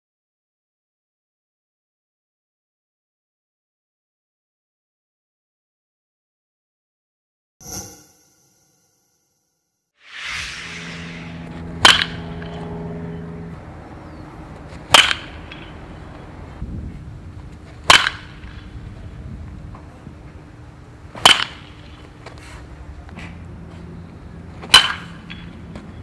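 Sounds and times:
bat cracking baseball: 17.9s - 18.6s, 21.2s - 21.9s.

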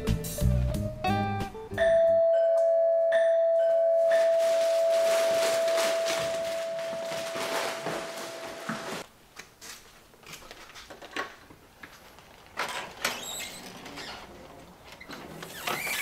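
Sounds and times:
doorbell chime: 1.8s - 8.5s
chip bag crinkling: 4.2s - 9.0s.

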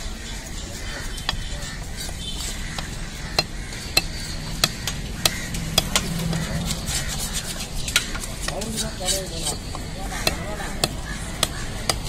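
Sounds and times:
steady background hum: 0.0s - 12.0s
knife chopping fish on wooden block: 1.2s - 6.6s, 9.5s - 12.0s.

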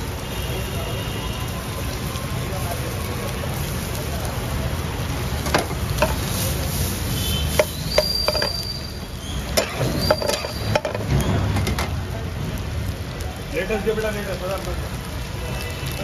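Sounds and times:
meat sizzling in a pan: 0.0s - 16.0s
metal spatula clinking on pan: 7.6s - 8.6s, 9.6s - 11.0s
short high squeaks: 7.6s - 10.7s.

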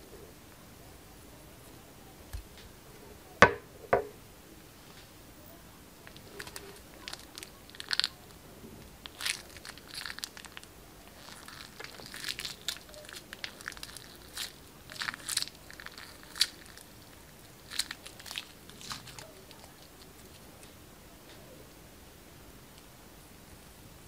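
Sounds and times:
plastic piping bag crinkling: 6.0s - 20.8s
squishy clicks of beaded liquid: 6.1s - 8.2s, 9.0s - 20.8s.

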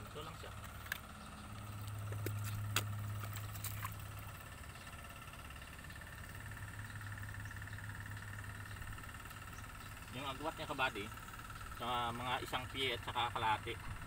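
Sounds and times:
low motor hum: 0.0s - 14.0s.

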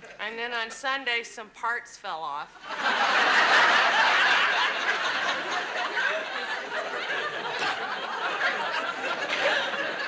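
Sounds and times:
studio audience laughing: 2.6s - 10.0s.

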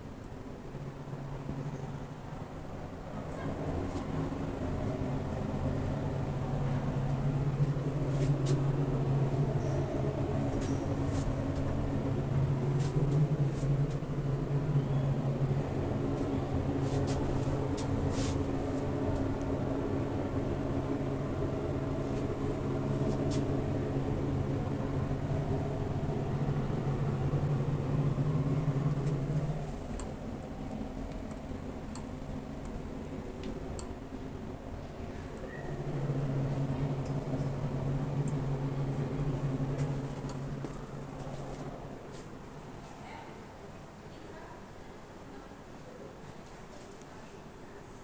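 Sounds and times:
elevator motor humming: 0.0s - 42.7s.

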